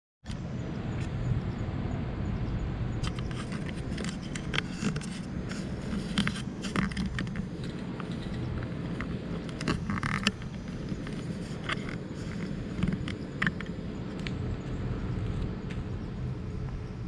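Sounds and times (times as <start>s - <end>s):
steady low rumble: 0.3s - 17.0s.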